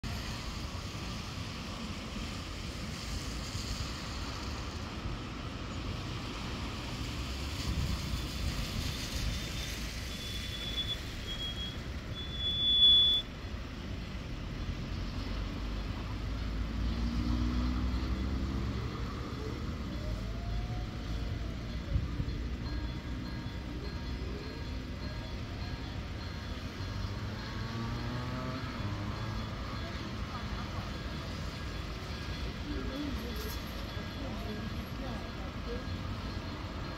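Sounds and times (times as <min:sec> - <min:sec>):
traffic rumbling on wet road: 0:00.0 - 0:36.9
vehicle engine moving off: 0:14.5 - 0:22.3.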